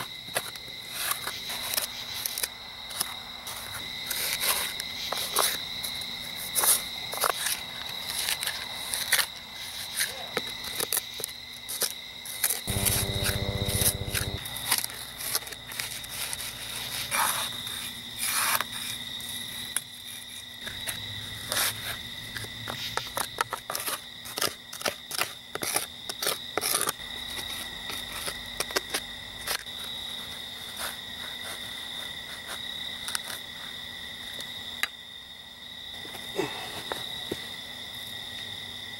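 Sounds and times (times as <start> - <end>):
crickets trilling: 0.0 - 38.9
trowel scraping soil: 12.7 - 14.4.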